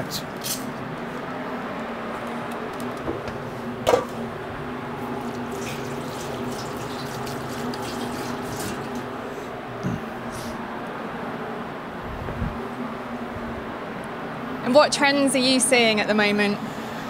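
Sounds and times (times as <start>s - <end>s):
background hum: 0.0s - 17.0s
tap water running into sink: 5.1s - 9.2s.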